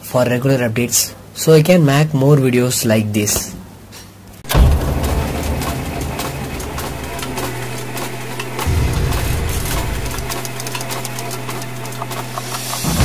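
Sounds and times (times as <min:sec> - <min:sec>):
steady low hum: 0:04.4 - 0:13.0
deep bass rumble: 0:04.5 - 0:12.6
mechanical clicking and clattering: 0:04.5 - 0:13.0.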